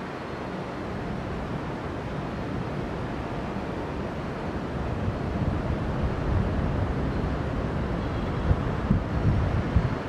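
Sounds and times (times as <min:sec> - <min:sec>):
wind buffeting microphone: 0:03.7 - 0:10.0.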